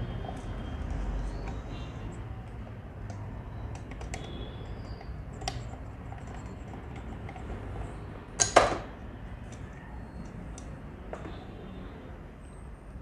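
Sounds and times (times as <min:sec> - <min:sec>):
screwdriver clicks and taps: 0:03.0 - 0:07.5.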